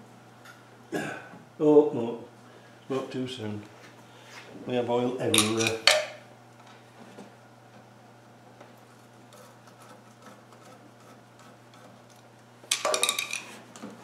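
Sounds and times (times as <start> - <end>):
metal parts clinking and clattering: 5.4 - 6.1, 12.7 - 13.6.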